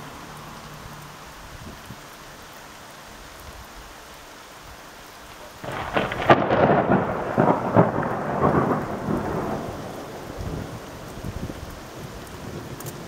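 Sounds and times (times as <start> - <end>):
steady rain: 0.0 - 13.0
thunder cracking and rumbling: 5.6 - 13.0.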